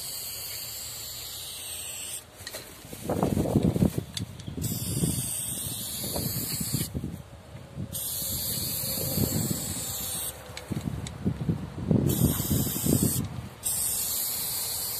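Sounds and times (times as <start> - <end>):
spray paint can hissing: 0.0 - 2.3, 4.6 - 7.0, 7.9 - 10.4, 12.0 - 14.9.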